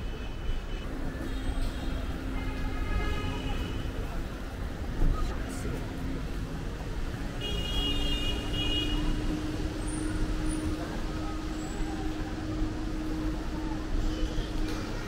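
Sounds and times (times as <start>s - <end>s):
traffic rumble: 0.0s - 15.0s.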